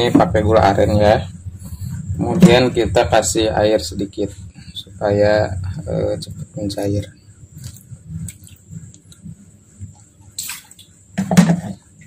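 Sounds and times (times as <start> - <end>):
knock: 11.2 - 11.8.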